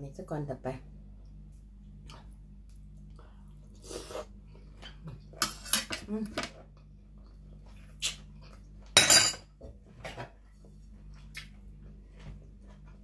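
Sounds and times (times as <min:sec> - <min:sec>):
plate and utensils clattering: 0:09.0 - 0:09.5.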